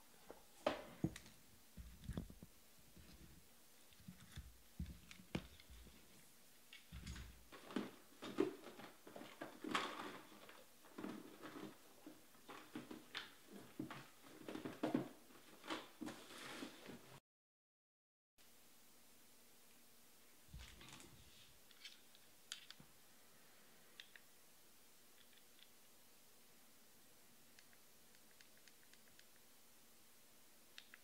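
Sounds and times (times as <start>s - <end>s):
soft rustling: 0.1s - 17.2s.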